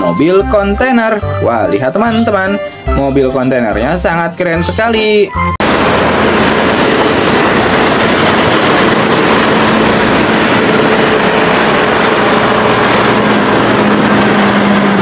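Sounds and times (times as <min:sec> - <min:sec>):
heavy vehicle rumble: 0:05.6 - 0:15.0.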